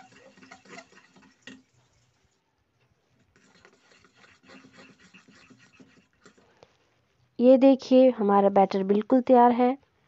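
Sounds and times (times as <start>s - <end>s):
spoon beating batter in steel bowl: 0.0s - 2.4s, 3.1s - 6.6s.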